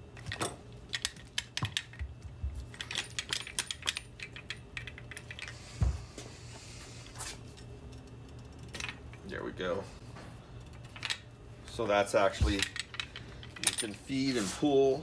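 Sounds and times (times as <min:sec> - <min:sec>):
low steady hum: 0:00.0 - 0:15.0
wires clicking against metal handlebar: 0:00.1 - 0:05.6, 0:10.6 - 0:14.0.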